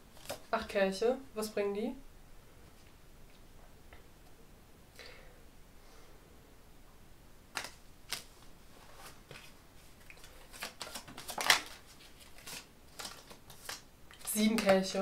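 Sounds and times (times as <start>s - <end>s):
cards being shuffled: 0.1s - 0.5s, 7.5s - 15.0s
card snaps: 7.6s - 8.3s.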